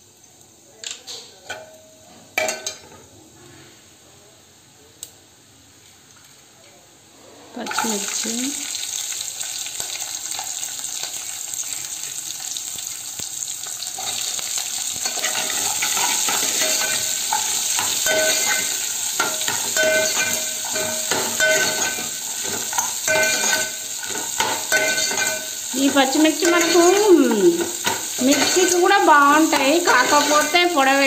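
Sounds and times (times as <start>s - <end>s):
chillies sizzling in hot oil: 7.5s - 31.0s.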